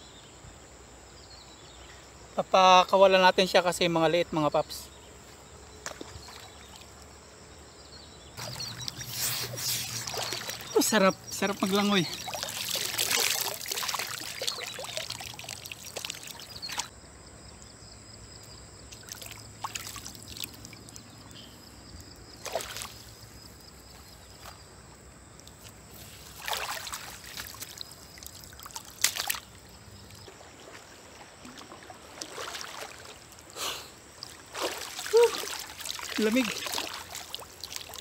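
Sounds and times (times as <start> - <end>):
short water splashes: 5.8 - 7.0, 8.4 - 16.9, 18.9 - 21.0, 22.3 - 23.2, 25.4 - 38.0
water pouring off net: 8.4 - 10.8, 11.6 - 16.9, 26.1 - 29.4, 34.5 - 38.0.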